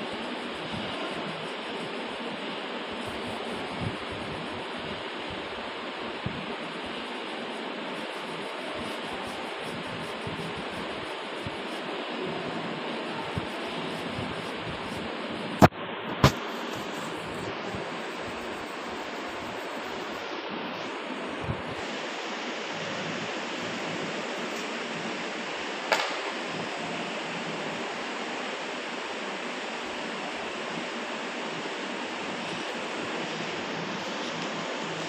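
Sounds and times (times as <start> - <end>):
background hiss: 0.0 - 35.0
sharp click: 25.9 - 26.2.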